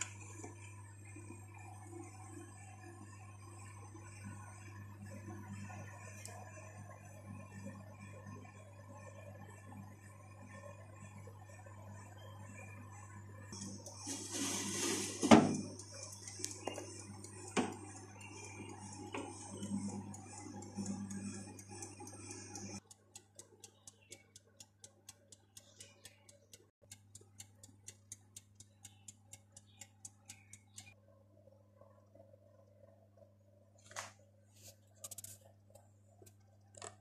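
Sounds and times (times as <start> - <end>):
electric oven humming and hissing: 0.0 - 31.0
rapid even ticking: 15.7 - 31.0.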